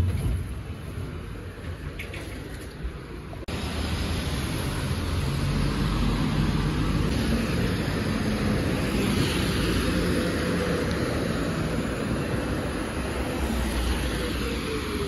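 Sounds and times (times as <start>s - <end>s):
tyre hiss on wet road: 7.1s - 15.0s.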